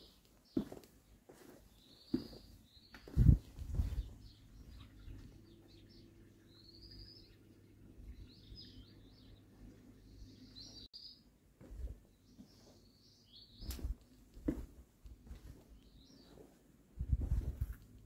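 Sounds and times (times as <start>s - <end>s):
songbird chirping and warbling: 1.7s - 11.3s, 12.1s - 14.0s, 15.7s - 16.4s.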